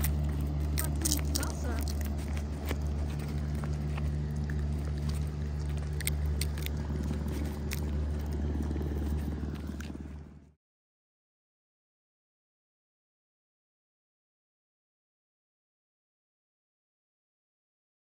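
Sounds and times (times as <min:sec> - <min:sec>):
pawing at a backpack: 0:00.0 - 0:10.4
marmots chewing: 0:00.0 - 0:10.5
low rumble: 0:00.0 - 0:10.6.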